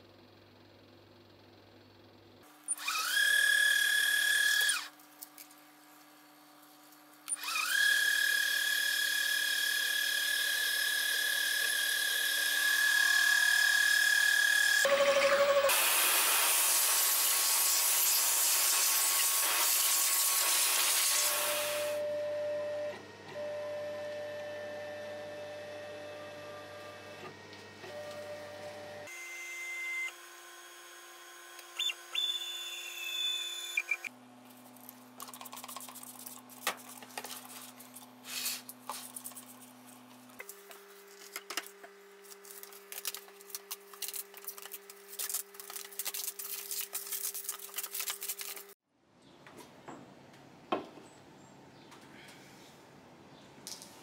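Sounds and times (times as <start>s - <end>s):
workshop hum: 0.0s - 48.8s
plastic film crinkling: 40.4s - 48.8s.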